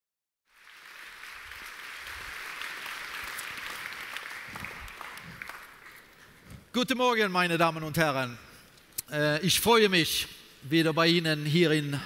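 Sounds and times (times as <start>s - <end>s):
audience applauding: 0.5s - 6.5s.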